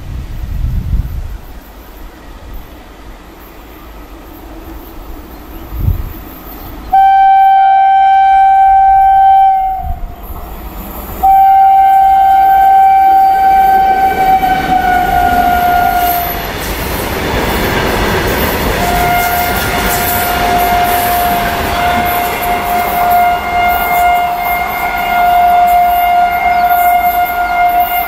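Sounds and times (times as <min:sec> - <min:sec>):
locomotive horn blasts: 0:06.9 - 0:10.2, 0:11.2 - 0:16.4, 0:18.7 - 0:28.0.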